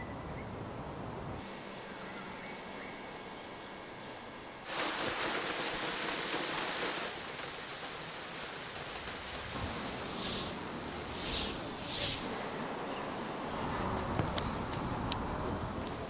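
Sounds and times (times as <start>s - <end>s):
fountain water splashing: 4.6s - 12.5s
broom sweeping paving: 4.7s - 12.7s.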